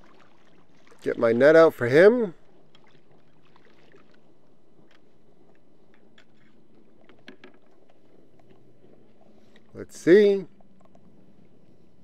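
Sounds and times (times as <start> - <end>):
water lapping against kayak hull: 0.0 - 12.0
fishing gear clicks and taps: 4.8 - 8.6, 10.5 - 11.1.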